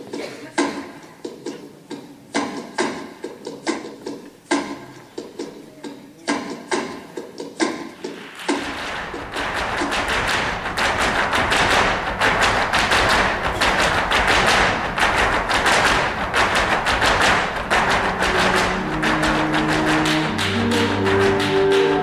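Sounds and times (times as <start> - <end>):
dancers stamping on stage floor: 6.4 - 22.0.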